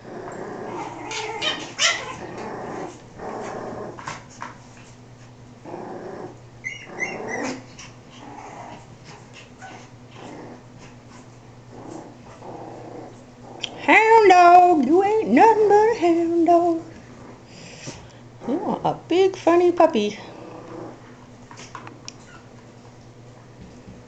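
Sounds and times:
puppies growling: 0.0s - 19.0s, 20.2s - 22.6s
puppies yipping: 0.8s - 2.4s, 6.6s - 7.9s.

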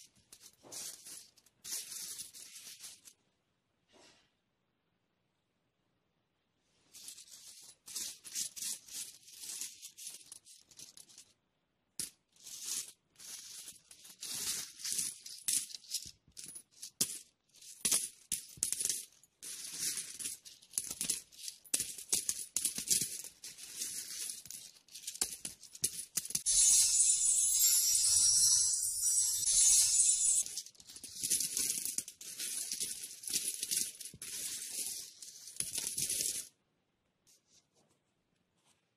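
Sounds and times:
coins clinking: 0.3s - 3.1s, 12.0s - 36.5s.

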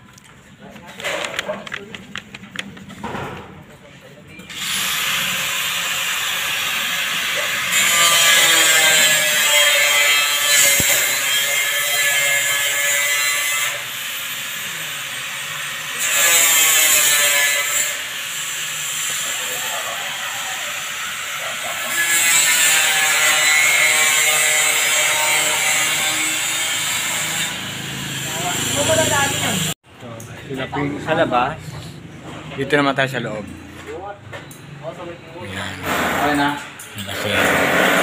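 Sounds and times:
power tool whining: 35.8s - 38.0s.

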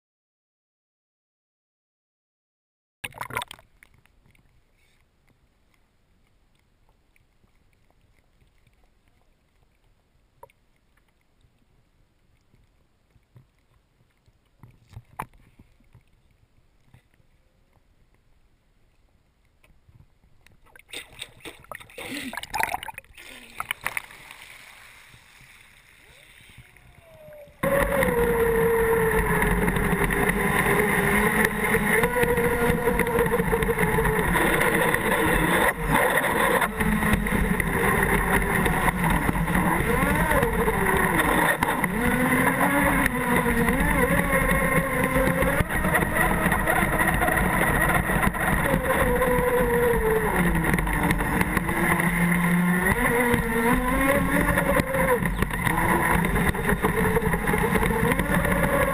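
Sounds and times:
water rushing against hull: 3.0s - 17.9s, 19.7s - 58.9s
electric motor whine: 27.6s - 58.9s.

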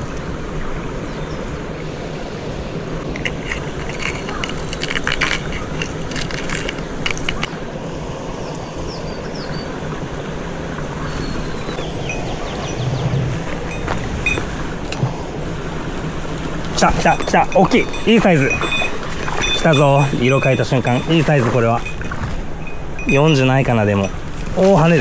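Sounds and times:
stream water rushing: 0.0s - 25.0s
small clicks and rattles: 3.2s - 7.6s.

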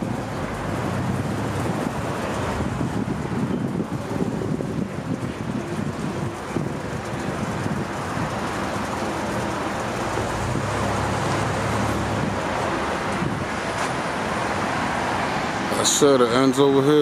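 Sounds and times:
wind on microphone: 0.0s - 15.6s
low vehicle rumble: 0.0s - 17.0s
passing cars: 0.0s - 17.0s.

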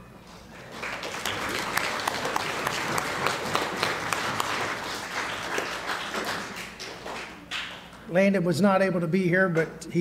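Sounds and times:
audience applauding: 0.5s - 8.0s.

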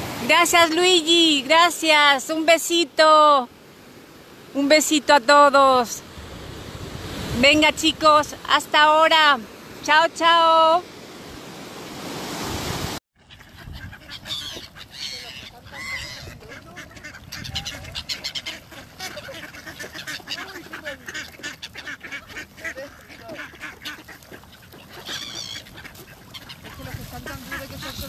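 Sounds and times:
surf washing on beach: 0.0s - 13.0s
ducks quacking: 13.2s - 28.0s.

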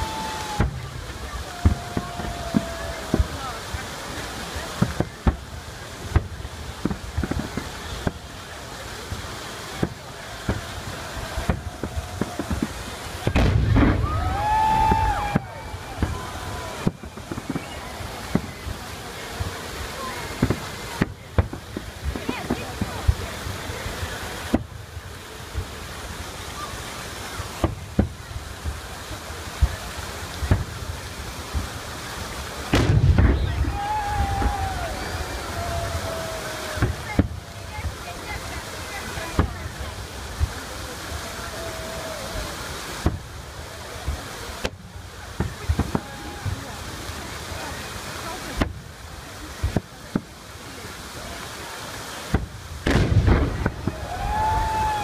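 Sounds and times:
distant firework bangs: 0.0s - 8.4s, 9.0s - 24.9s, 27.6s - 28.9s, 29.6s - 30.9s, 32.7s - 40.7s, 42.9s - 43.4s, 44.0s - 46.9s, 52.3s - 55.0s
background hiss: 0.0s - 55.0s
fountain water rushing: 0.0s - 55.0s.

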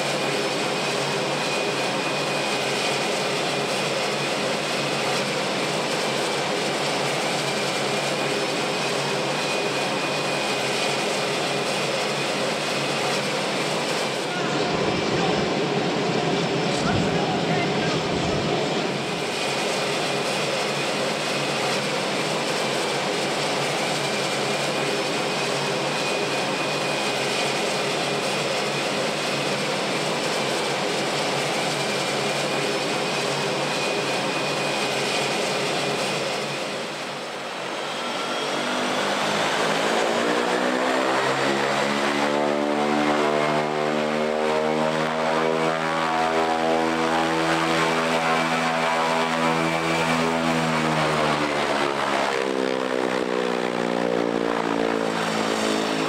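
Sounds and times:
high turbine whine: 0.0s - 56.0s
propeller plane engine running: 0.0s - 56.0s.

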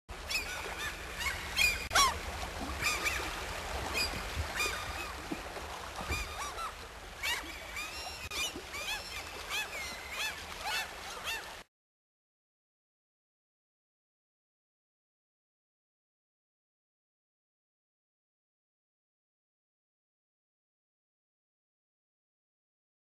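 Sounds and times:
low steady hum: 0.1s - 11.2s
water birds calling: 0.1s - 11.7s.

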